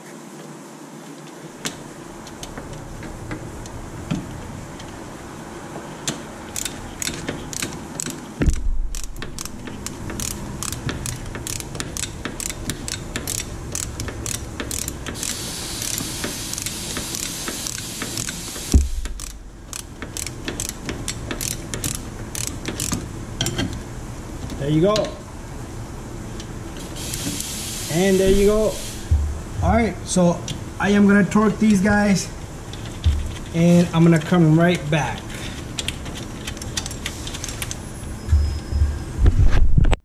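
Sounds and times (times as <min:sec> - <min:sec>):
ratchet wrench clicking: 0:06.1 - 0:23.6
dull thumps: 0:08.4 - 0:10.2, 0:28.3 - 0:29.9, 0:33.0 - 0:33.6.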